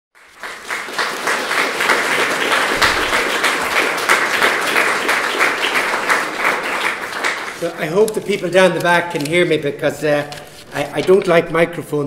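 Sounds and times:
audience applauding: 0.2s - 8.5s.

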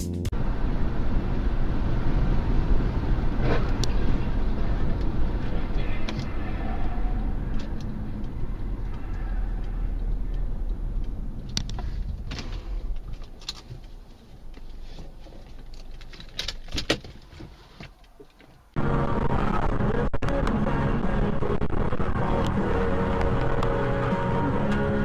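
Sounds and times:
car interior road and engine noise: 0.3s - 25.0s
sharp clicks and rattles: 5.0s - 18.7s.

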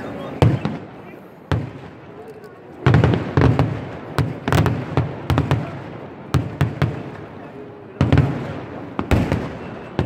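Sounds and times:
fireworks exploding: 0.0s - 10.0s.

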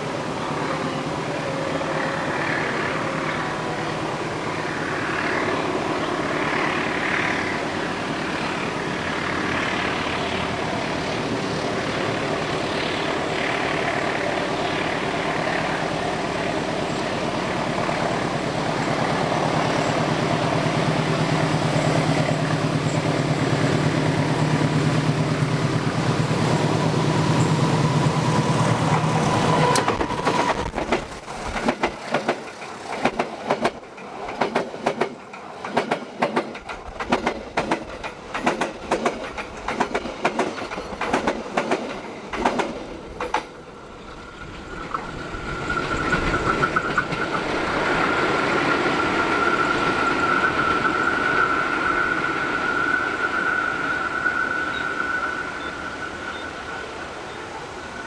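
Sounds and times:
diesel locomotive engine drone: 0.0s - 58.0s
train wheels clattering over joints: 29.6s - 49.8s.

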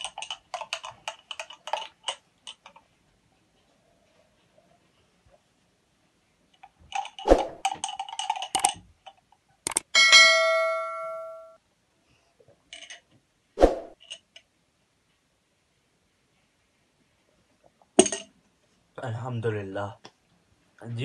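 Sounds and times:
bell ding: 10.0s - 11.6s.

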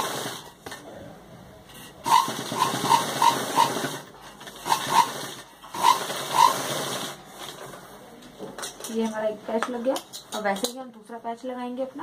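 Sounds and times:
sewing machine stitching: 0.0s - 0.5s, 2.0s - 7.6s.

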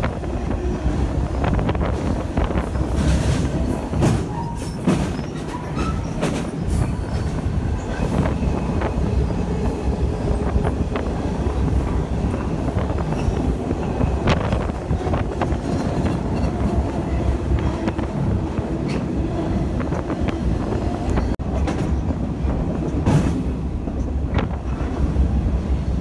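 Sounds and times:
train wheels rumbling on rail: 0.0s - 26.0s.

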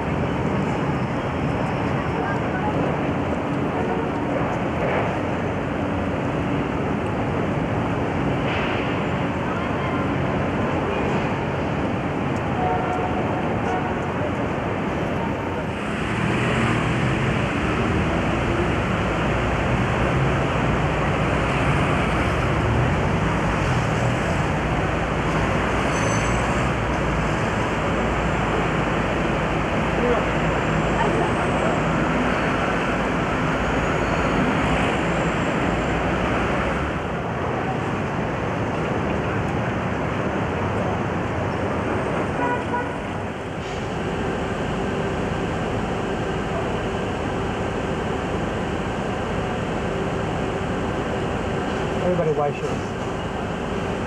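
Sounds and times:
city street traffic: 0.0s - 54.0s
passing vehicles: 0.0s - 54.0s
car horn toot: 42.4s - 43.0s.

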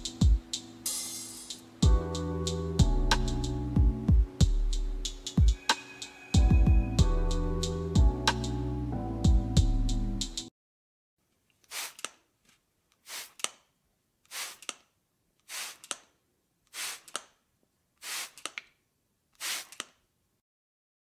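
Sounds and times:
short hiss with quick clicks: 11.6s - 12.2s, 14.3s - 14.8s, 15.4s - 16.1s, 18.0s - 18.7s, 19.4s - 20.0s.

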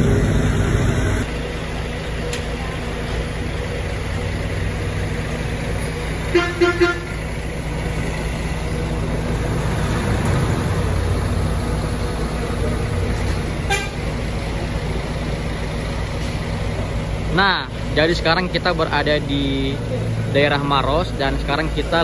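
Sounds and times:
vehicle engine rumbling: 0.0s - 22.0s
vehicle horn tooting: 6.3s - 7.2s, 13.6s - 14.1s.

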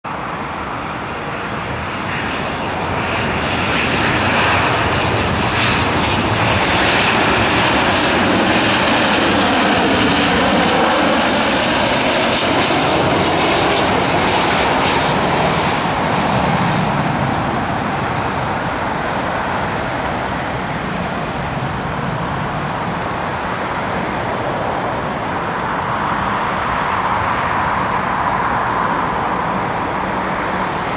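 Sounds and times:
jet airliner passing with fan whine: 0.1s - 30.9s.

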